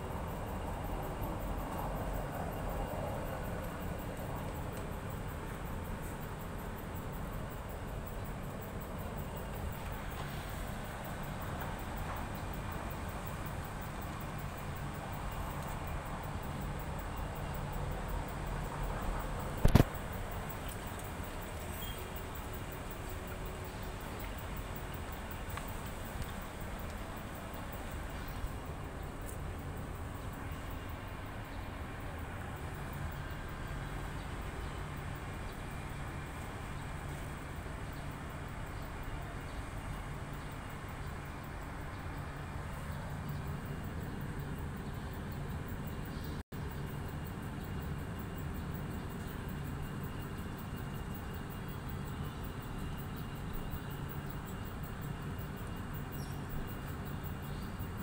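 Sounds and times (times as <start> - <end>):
faint hum: 0.0 - 58.0
small click: 19.6 - 19.9.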